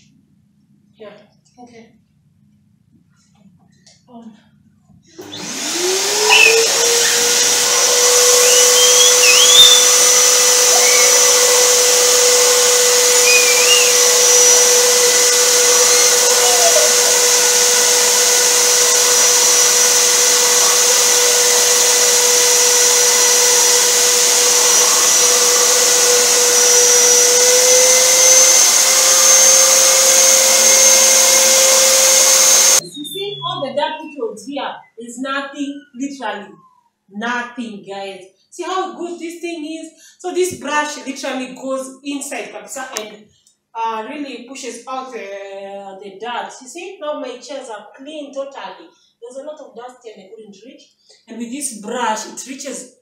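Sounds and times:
vacuum cleaner motor whining: 5.2s - 33.7s.

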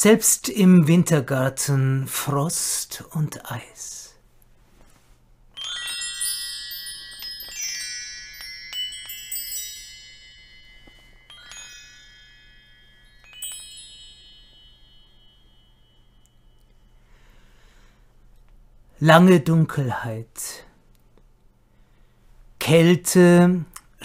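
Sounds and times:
metal chimes ringing: 5.6s - 17.8s.

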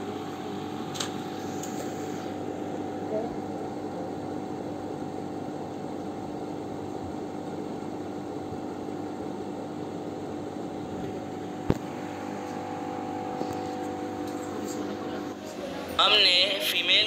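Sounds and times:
machine hum with hiss: 0.0s - 17.0s.

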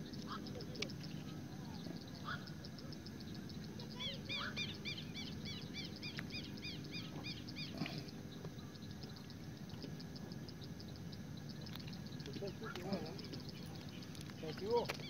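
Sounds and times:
rapid high ticking calls: 0.0s - 15.0s.

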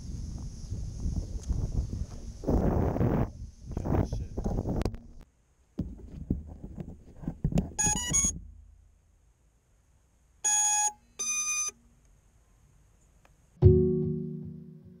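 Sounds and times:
long electronic beeps: 7.8s - 8.4s, 10.5s - 11.8s
stepped electronic beeps: 7.8s - 8.4s.

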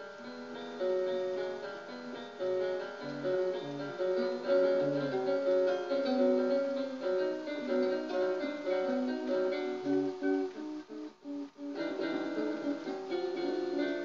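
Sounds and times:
plucked guitar notes: 0.0s - 14.0s.

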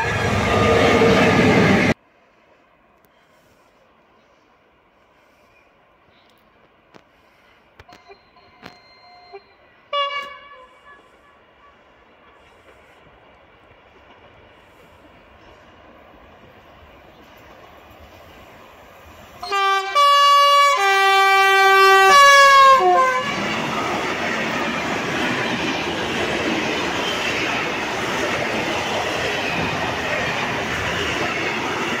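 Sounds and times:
freight train passing: 0.0s - 32.0s
locomotive two-tone horn: 7.9s - 11.4s, 19.4s - 23.5s.

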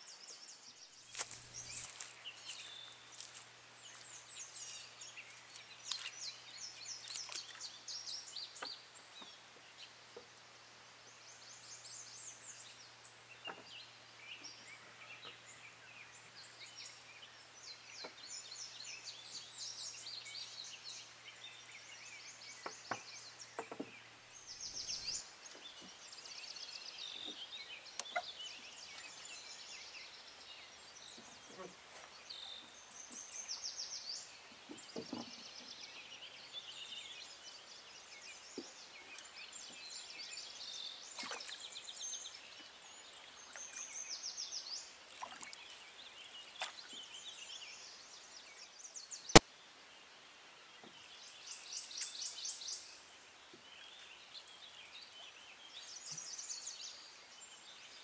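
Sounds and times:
songbirds singing and trilling: 0.0s - 58.0s
wooden oar knocks: 22.6s - 24.0s, 34.7s - 35.4s.

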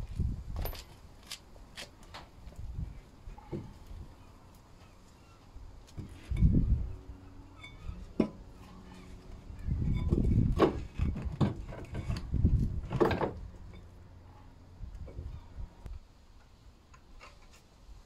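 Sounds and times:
metal clunks and rattling: 7.6s - 8.4s, 9.8s - 13.9s.

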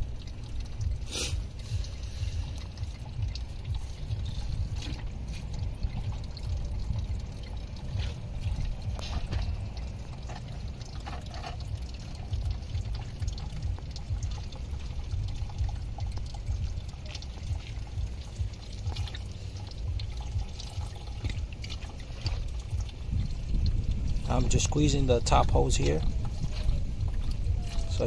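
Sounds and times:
coolant pouring and splashing: 0.0s - 28.0s
low rumble: 0.0s - 28.0s.

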